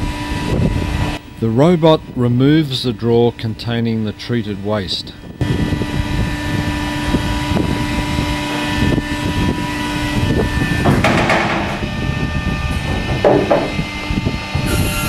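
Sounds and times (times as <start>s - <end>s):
mechanical hum: 0.0s - 15.0s
metallic knocks: 10.8s - 11.9s, 12.8s - 14.7s.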